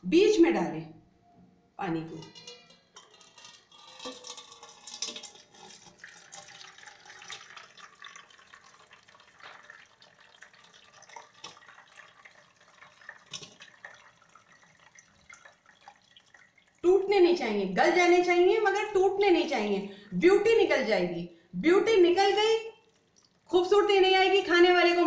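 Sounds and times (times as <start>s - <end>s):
water splashing onto metal colander: 2.2s - 17.6s, 22.0s - 24.8s.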